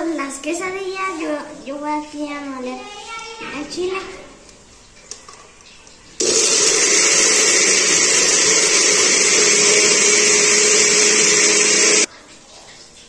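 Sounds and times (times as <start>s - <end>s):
blender running: 6.2s - 12.1s.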